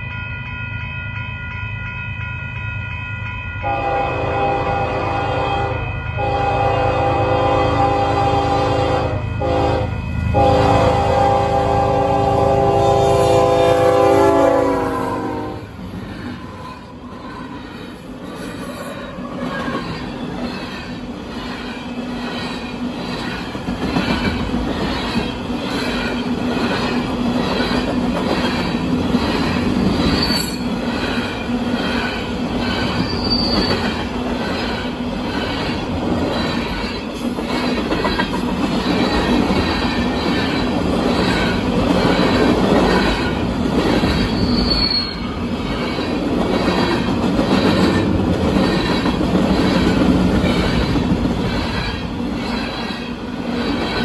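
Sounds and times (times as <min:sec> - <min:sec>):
train air horn: 0:03.6 - 0:15.8
train wheels clickety-clack: 0:15.8 - 0:54.0
faint wheel squeal: 0:33.0 - 0:33.8, 0:44.3 - 0:45.2.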